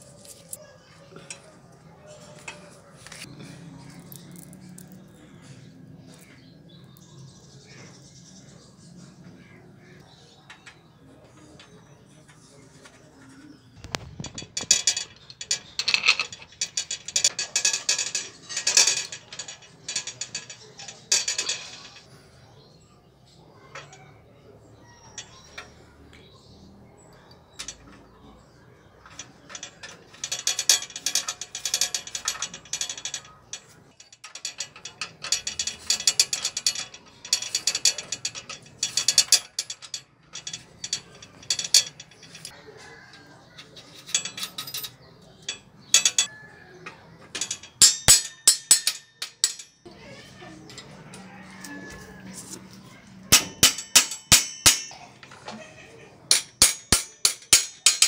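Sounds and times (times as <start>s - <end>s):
metallic clicking and ratcheting: 13.8s - 22.1s, 29.0s - 42.6s, 43.6s - 46.3s, 47.3s - 49.9s, 50.7s - 58.0s
hammer striking metal: 47.4s - 49.8s, 53.3s - 55.1s, 56.3s - 58.0s.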